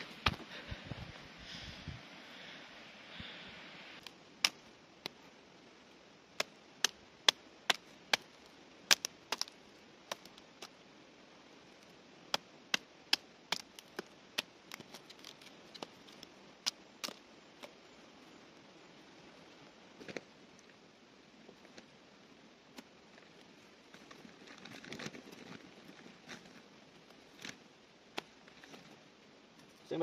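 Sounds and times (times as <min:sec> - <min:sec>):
blade chopping dry sticks: 0:06.4 - 0:08.3, 0:08.9 - 0:10.7, 0:12.3 - 0:17.2.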